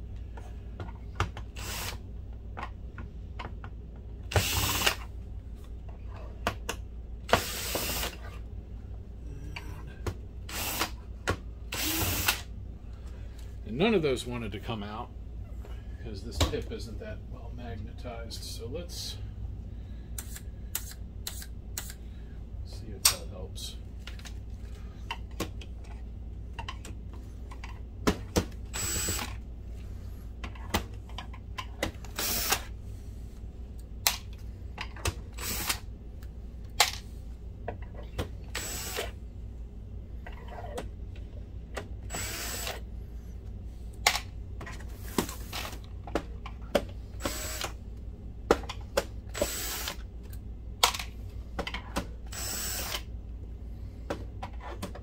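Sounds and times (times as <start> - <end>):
cordless drill motor bursts: 1.6 - 2.0, 4.3 - 5.0, 7.3 - 8.2, 10.5 - 11.0, 11.7 - 12.4, 28.7 - 29.3, 32.1 - 32.7, 35.4 - 35.8, 38.5 - 39.1, 42.1 - 42.8, 47.2 - 47.8, 49.3 - 50.0, 52.3 - 53.1.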